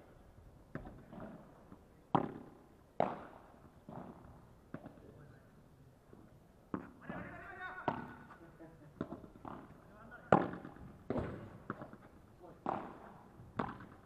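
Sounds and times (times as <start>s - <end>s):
ball bouncing on court: 0.7s - 1.4s, 2.1s - 5.0s, 6.7s - 8.3s, 9.0s - 12.0s, 12.6s - 14.0s
paddles striking ball: 2.1s - 5.0s, 9.0s - 12.0s, 12.6s - 14.0s.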